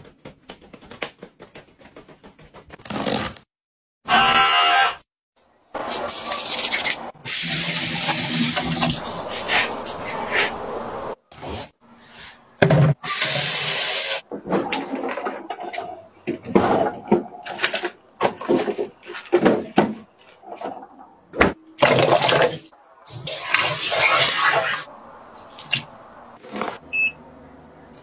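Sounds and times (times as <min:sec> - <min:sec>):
plastic bins knocking and rustling: 0:12.6 - 0:13.0, 0:14.2 - 0:22.6
water splashing into plastic basin: 0:21.8 - 0:24.8.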